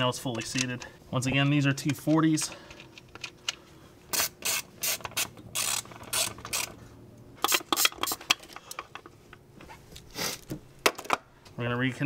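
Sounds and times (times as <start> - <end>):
hand ratchet clicking: 4.1 - 6.8.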